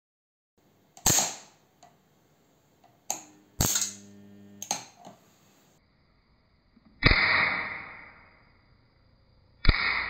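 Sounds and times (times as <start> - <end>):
sharp electric arcing snaps: 1.0 - 1.6, 3.1 - 5.0, 7.0 - 8.4, 9.6 - 10.0
transformer humming: 3.1 - 5.0.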